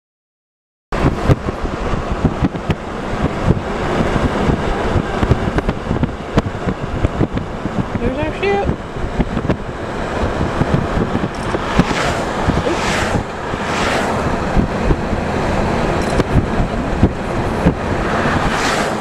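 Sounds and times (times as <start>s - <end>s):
wind buffeting microphone: 1.0s - 19.0s
brief whooshes: 11.2s - 14.8s, 18.1s - 19.0s.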